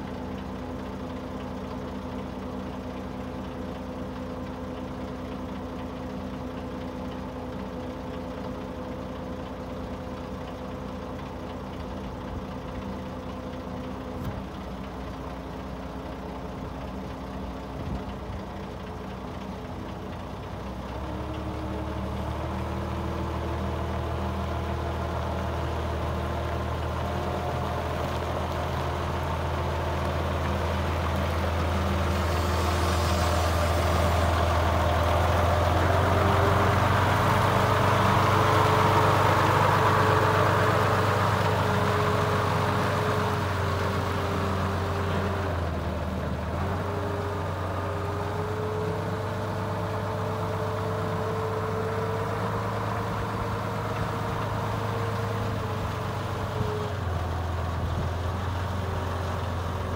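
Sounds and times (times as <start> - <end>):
forklift engine revving: 20.4 - 59.9.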